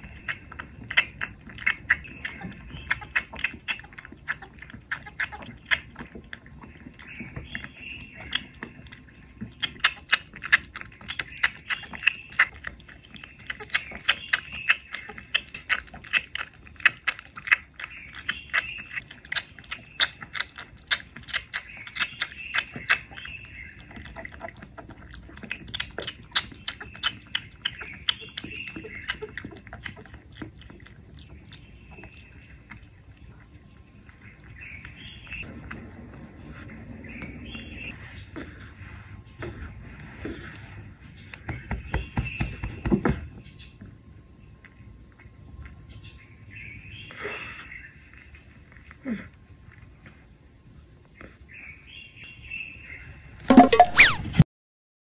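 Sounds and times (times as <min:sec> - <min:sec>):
cat suckling from bottle: 0:00.0 - 0:07.1
birds chirping: 0:00.0 - 0:48.6.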